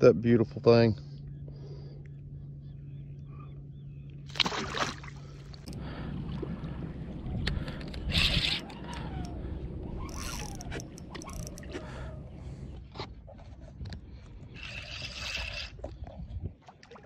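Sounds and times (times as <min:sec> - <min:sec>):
fishing reel cranking clicks: 0:07.8 - 0:09.4, 0:10.1 - 0:11.7.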